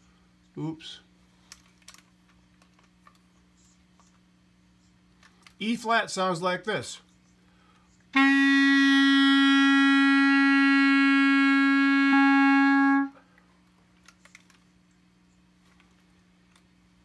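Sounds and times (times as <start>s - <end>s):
clarinet holding a long note: 8.1s - 13.2s.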